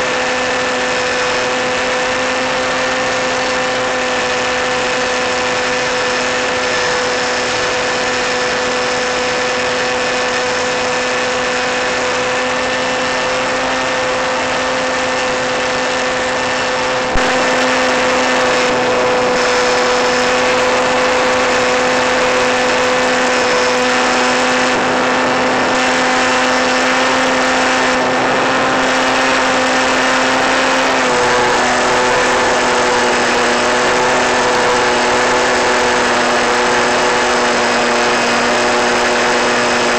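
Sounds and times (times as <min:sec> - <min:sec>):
model airplane motor humming: 0:00.0 - 0:39.9.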